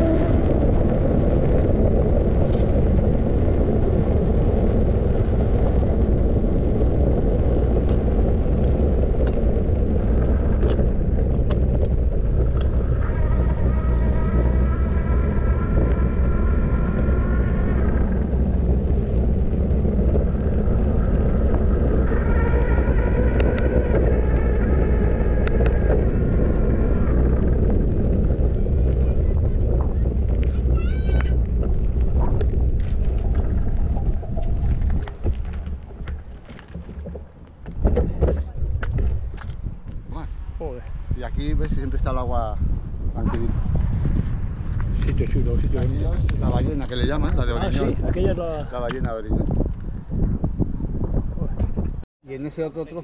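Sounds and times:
whine with stacked tones: 0.0s - 40.1s
wind buffeting microphone: 0.0s - 53.0s.

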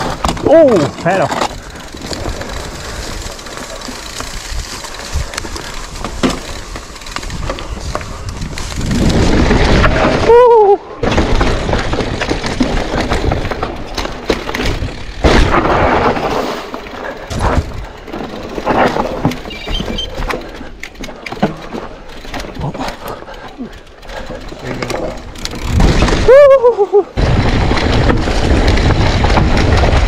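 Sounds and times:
bike rattling on rough trail: 0.0s - 30.0s
wind buffeting microphone: 7.2s - 10.3s.

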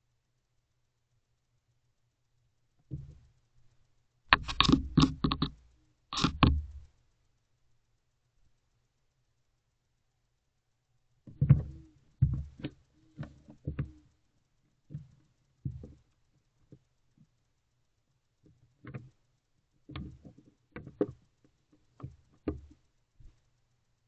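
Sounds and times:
owl knocking against wooden box: 4.4s - 5.6s, 6.2s - 6.8s, 11.3s - 14.0s, 22.0s - 22.7s.

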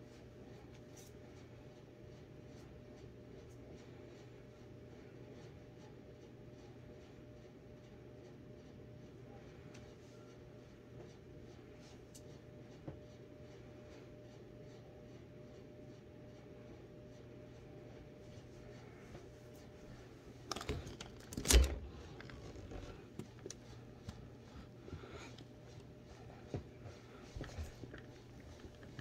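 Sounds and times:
low steady hum: 0.0s - 29.0s
hands rubbing skin and clothing: 22.0s - 29.0s.

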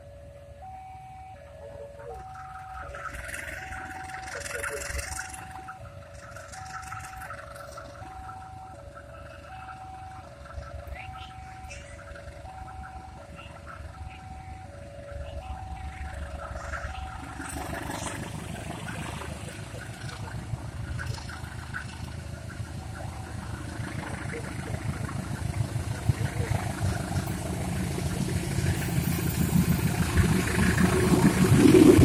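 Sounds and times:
locomotive engine rumbling: 0.0s - 32.0s.

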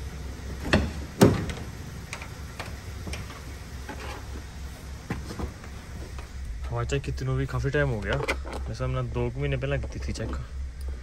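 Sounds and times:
low steady hum: 0.0s - 11.0s
car door clunk: 0.5s - 4.0s.

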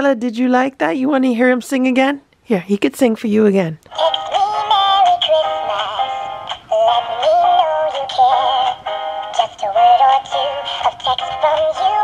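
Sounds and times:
backing music: 3.9s - 12.0s
toy singing christmas song: 3.9s - 12.0s.

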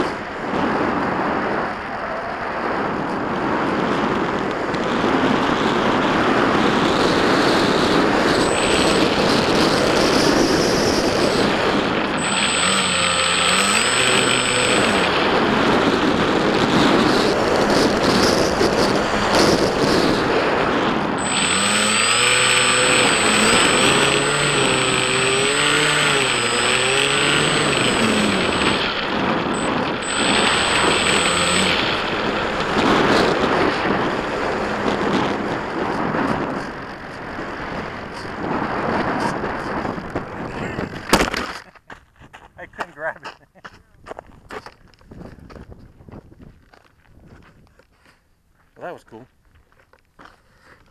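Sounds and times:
electric motor and propeller whining: 0.0s - 41.6s
wind rushing over microphone: 0.0s - 41.6s, 43.9s - 47.8s.

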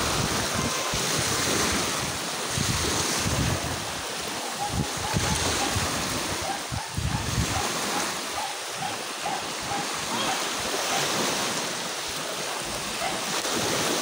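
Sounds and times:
wind buffeting microphone: 0.0s - 11.6s
small waves washing on shore: 0.0s - 14.0s.

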